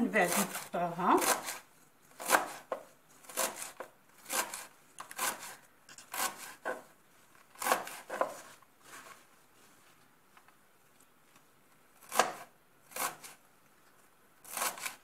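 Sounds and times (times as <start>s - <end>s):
knife slicing leaves on cutting board: 0.2s - 1.6s, 2.2s - 6.9s, 7.6s - 8.6s, 12.1s - 13.4s, 14.4s - 15.0s.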